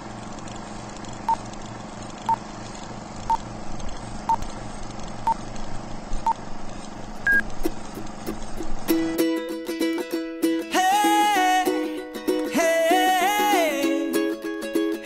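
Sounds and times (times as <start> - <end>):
film projector whirring: 0.0 - 15.0
short beeps: 7.2 - 7.4.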